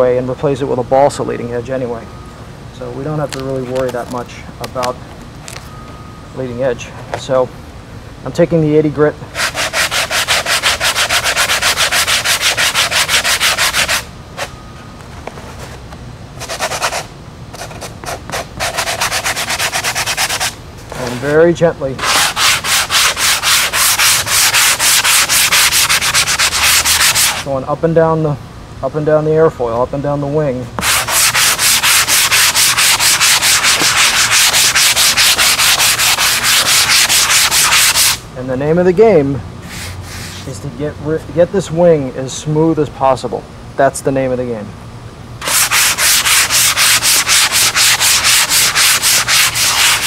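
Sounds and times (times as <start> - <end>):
sanding pad rasping by hand: 9.4 - 14.1, 16.4 - 21.4, 22.0 - 27.5, 30.8 - 38.2, 45.4 - 50.0.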